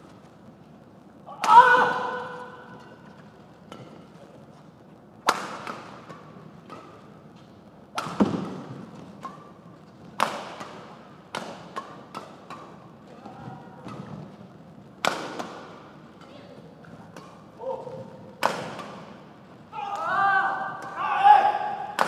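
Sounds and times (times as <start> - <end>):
rackets striking shuttlecock: 5.2 - 14.4, 15.0 - 19.4, 20.0 - 22.0.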